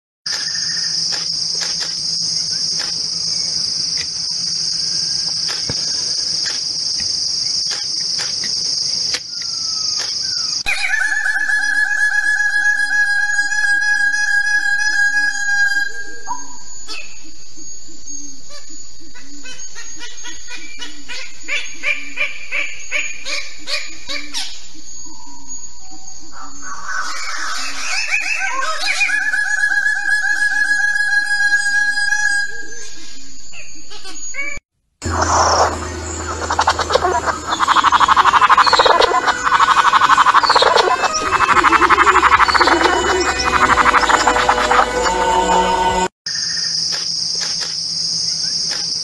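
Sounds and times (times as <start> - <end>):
insects buzzing: 0.3 - 10.7, 35.0 - 49.0
rapidly pulsing animal call: 35.1 - 46.1.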